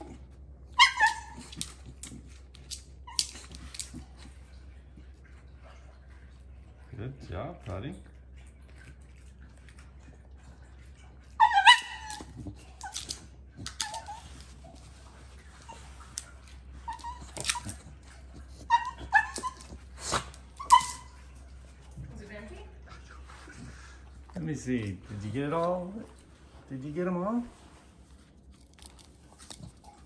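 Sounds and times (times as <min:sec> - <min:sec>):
dog yelping and whining: 0:00.0 - 0:04.3, 0:11.2 - 0:21.5.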